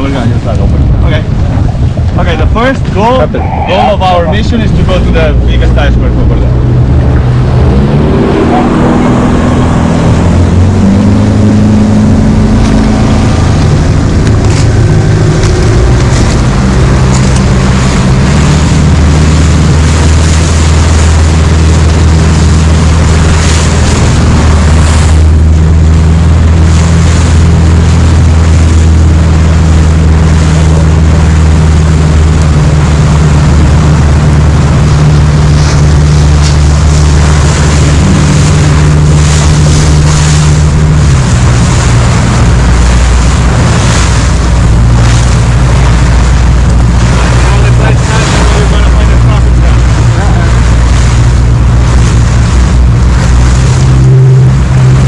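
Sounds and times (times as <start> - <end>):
outboard motor droning: 0.0 - 55.0
wind on microphone: 0.0 - 55.0.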